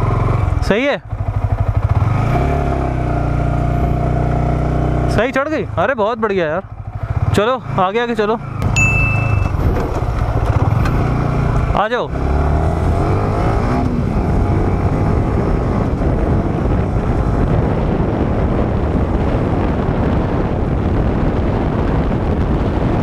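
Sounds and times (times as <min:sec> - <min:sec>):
motorcycle engine revving: 0:00.0 - 0:23.0
wind noise on microphone: 0:08.4 - 0:23.0.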